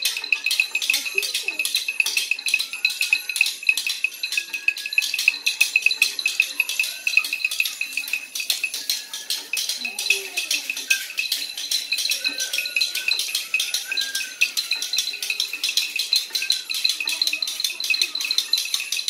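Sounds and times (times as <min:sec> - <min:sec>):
shakers and rattles shaken: 0:00.0 - 0:19.0
sliding whistle-like calls: 0:05.8 - 0:16.9.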